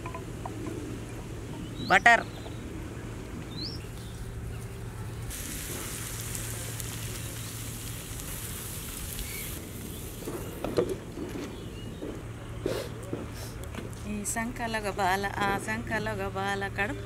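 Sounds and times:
batter sizzling on a griddle: 5.3s - 10.6s.

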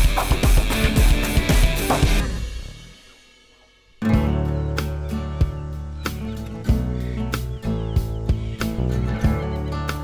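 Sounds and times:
drum and cymbal hit: 0.0s - 3.6s
rock music: 0.0s - 10.0s.

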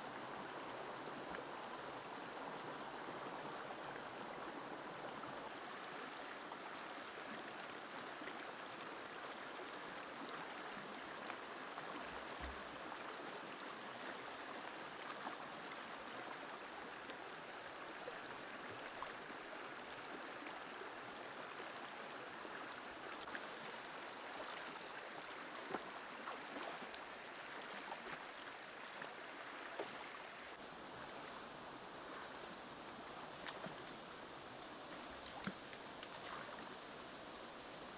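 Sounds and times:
stream flowing over rocks: 0.0s - 37.9s.

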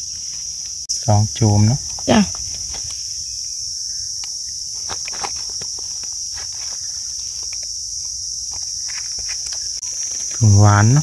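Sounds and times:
insect chorus buzzing: 0.0s - 11.0s.

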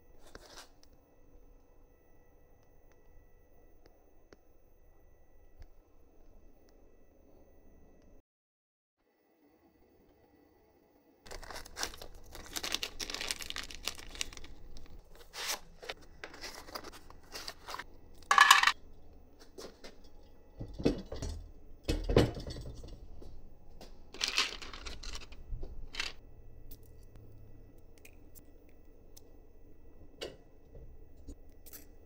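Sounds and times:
rustling: 11.3s - 18.7s, 24.1s - 26.2s.

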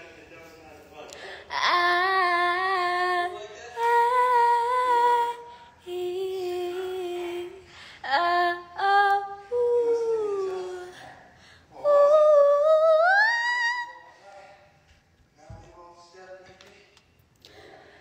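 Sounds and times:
woman singing wordless melody: 1.5s - 11.0s, 11.8s - 14.1s.

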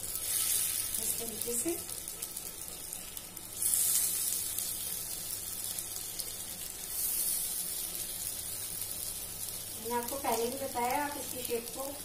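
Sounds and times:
kebabs sizzling in oil: 0.0s - 12.0s.

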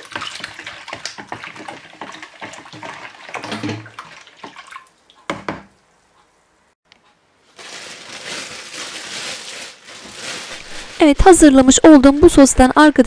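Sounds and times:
spoon stirring and splashing: 0.0s - 5.3s.

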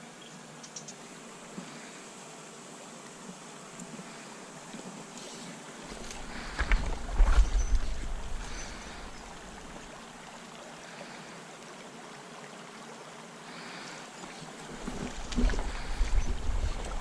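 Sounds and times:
river water rushing over gravel: 5.8s - 12.0s, 13.4s - 17.0s.

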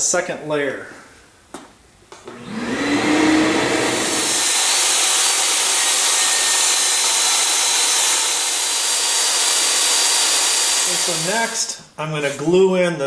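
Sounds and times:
table saw motor whining: 2.3s - 11.5s
saw cutting plywood: 2.3s - 11.6s.

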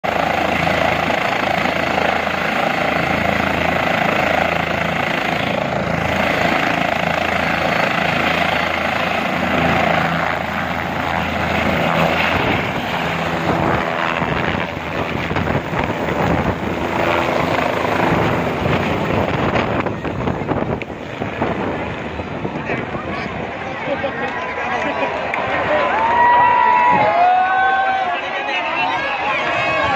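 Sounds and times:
helicopter rotor beat: 0.0s - 25.6s.

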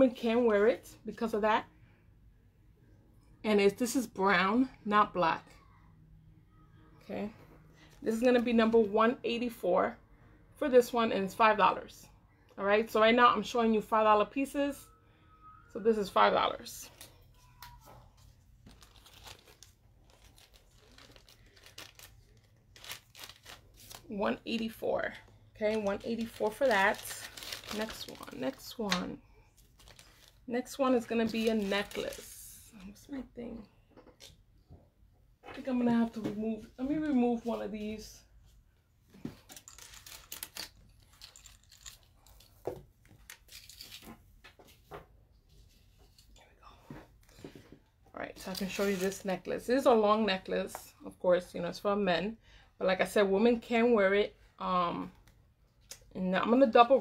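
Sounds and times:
plastic bag crinkling: 18.2s - 29.0s, 29.6s - 32.4s, 39.4s - 42.6s.

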